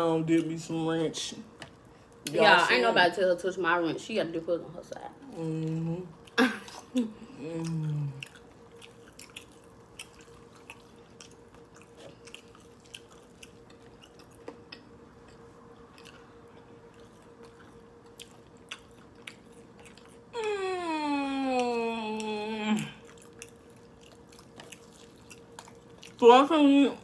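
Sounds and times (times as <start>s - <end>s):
faint steady hum: 0.0s - 27.0s
wet chewing with smacks: 7.6s - 20.4s, 22.2s - 26.2s
person humming downward in pitch: 20.4s - 23.0s.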